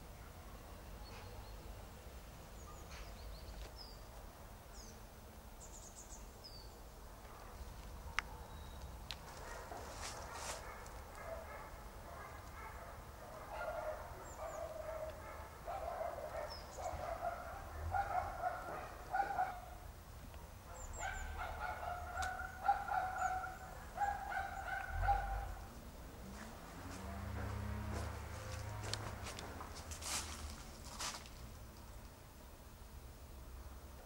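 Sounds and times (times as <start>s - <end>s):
small birds chirping: 2.5s - 6.9s, 7.6s - 11.1s, 13.6s - 25.6s.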